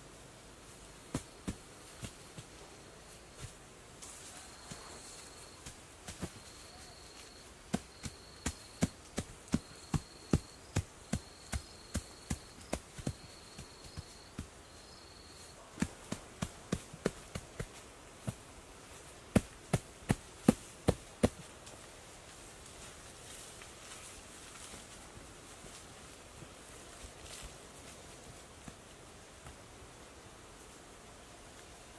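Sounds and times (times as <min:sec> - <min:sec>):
insect buzzing: 0:00.8 - 0:21.8
hands slapping grass sod: 0:01.1 - 0:02.6, 0:03.4 - 0:14.6, 0:15.7 - 0:21.9.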